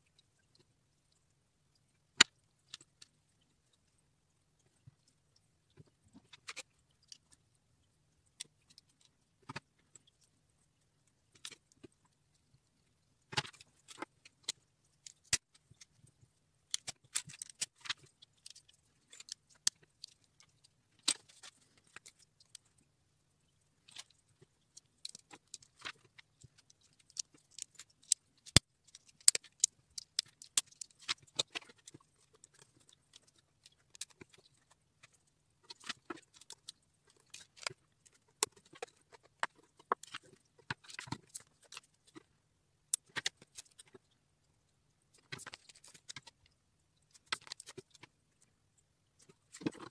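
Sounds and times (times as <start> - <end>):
lego pieces clicking and rattling: 16.7 - 22.6, 23.9 - 42.2.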